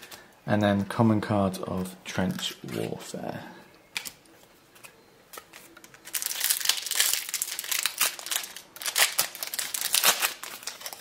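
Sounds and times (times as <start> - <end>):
wrapper crinkling: 5.3 - 11.0.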